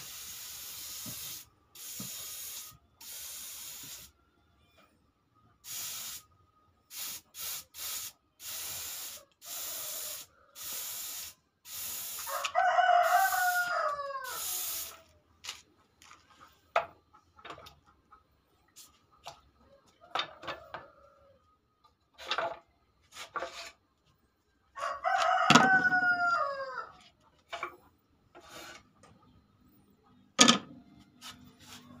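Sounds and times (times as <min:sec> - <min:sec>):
paint spray gun hissing: 0:00.0 - 0:04.1, 0:05.7 - 0:06.2, 0:06.9 - 0:12.5, 0:14.2 - 0:15.0
rooster crowing: 0:12.1 - 0:15.0, 0:24.7 - 0:27.1.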